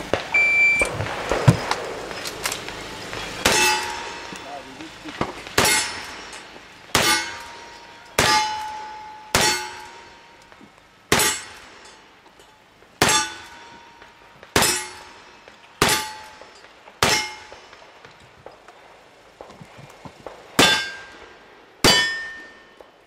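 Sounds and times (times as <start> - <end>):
revolver shots: 0.0 - 6.3
metallic ring of steel target: 0.9 - 17.8, 20.6 - 22.8.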